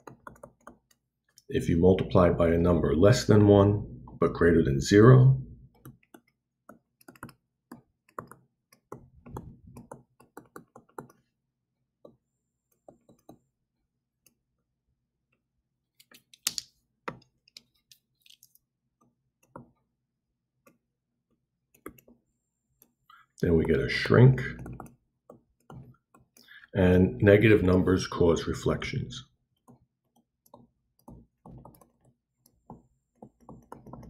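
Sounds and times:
stylus tapping on tablet screen: 0.0s - 1.0s, 5.7s - 11.3s, 12.0s - 13.5s, 19.0s - 19.8s, 21.7s - 22.2s, 24.5s - 26.5s, 29.6s - 34.0s.

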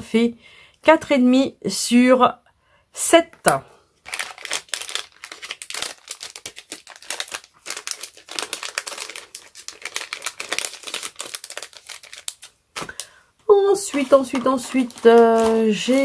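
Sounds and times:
packaging crinkling: 4.0s - 16.0s.

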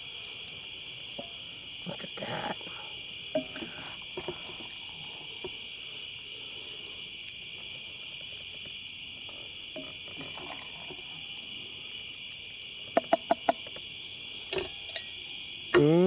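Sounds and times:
crickets and night insects: 0.0s - 16.0s
wooden spoon scraping metal plate: 3.4s - 5.5s.

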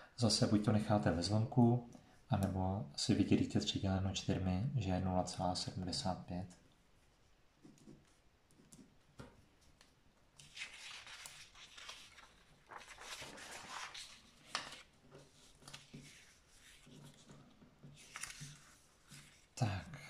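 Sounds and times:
paper pages rustling: 9.3s - 19.6s
paper crackle: 10.4s - 19.6s.

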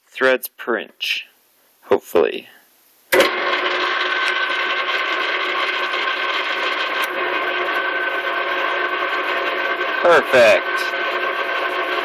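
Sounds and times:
lathe motor whine: 3.2s - 12.0s.

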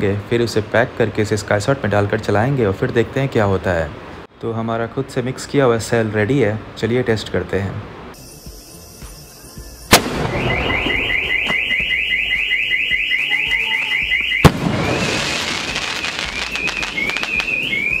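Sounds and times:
warbling firework whistle: 8.2s - 18.0s
firework shell bursting: 9.9s - 11.1s
firework launch bang: 9.9s - 11.6s, 14.4s - 17.6s.

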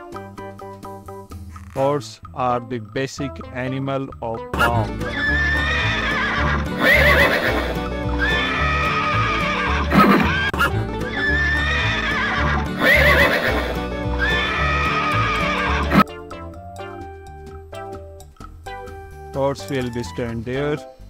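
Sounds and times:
background music with beat: 4.4s - 21.0s
horses neighing: 4.6s - 16.0s.

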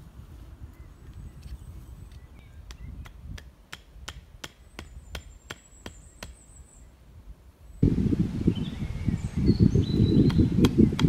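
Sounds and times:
hatchet knocking wooden stake: 2.6s - 6.4s.

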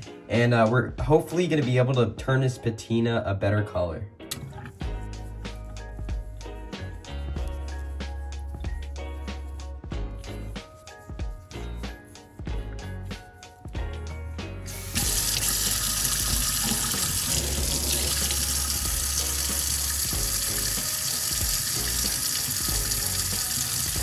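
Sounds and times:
tap water running into sink: 14.7s - 24.0s
water splashing over fingers: 14.9s - 24.0s.

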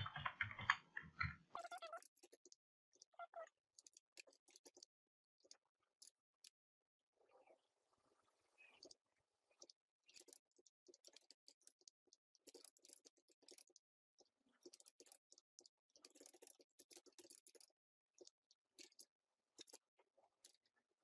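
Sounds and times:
keyboard typing clicks: 0.0s - 2.6s.

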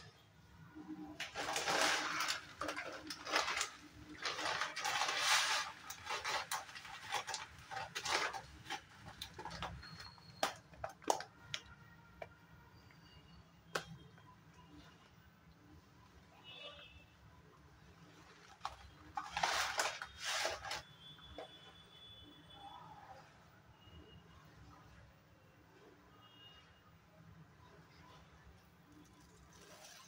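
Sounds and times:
milk bubbling and hissing: 28.8s - 30.0s.

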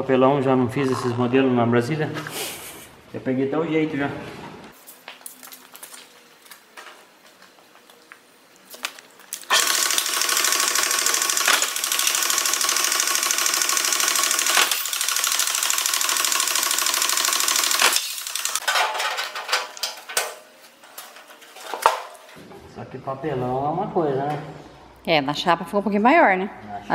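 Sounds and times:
power shear mechanical whirr: 9.5s - 18.6s
sheet metal and tools handled: 18.0s - 22.4s.

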